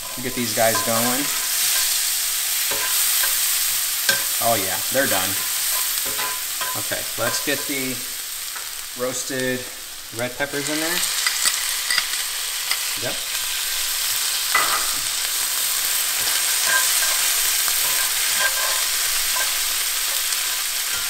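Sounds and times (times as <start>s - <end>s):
spatula scraping a skillet: 0.0s - 4.4s, 11.0s - 21.0s
vegetables sizzling in oil: 0.0s - 21.0s.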